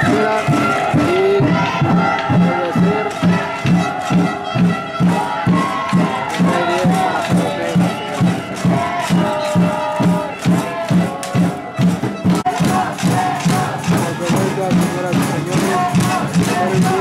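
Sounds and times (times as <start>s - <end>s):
fast drum beat: 0.0s - 17.0s.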